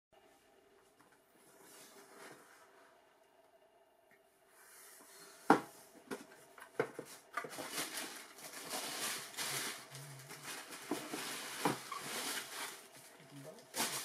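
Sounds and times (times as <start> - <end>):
tissue paper crinkling: 7.2 - 14.0.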